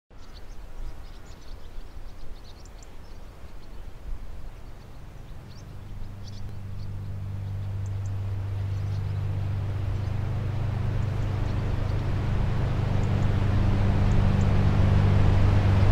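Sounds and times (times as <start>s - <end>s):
faint birds chirping: 0.1s - 15.9s
soft outdoor hiss: 0.1s - 15.9s
low steady hum: 0.2s - 15.9s.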